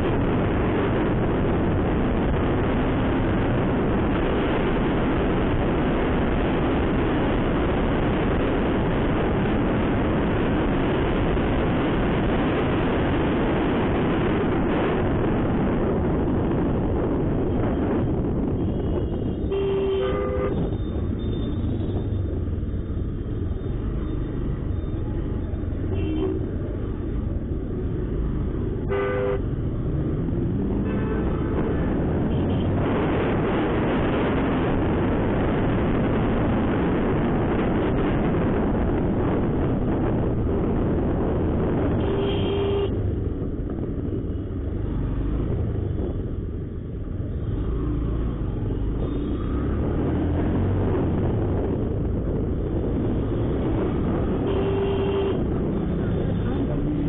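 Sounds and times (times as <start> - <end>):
wind rush on microphone: 0.0 - 57.0
vehicle horn beeps: 28.9 - 29.4, 42.0 - 43.0, 54.5 - 55.4.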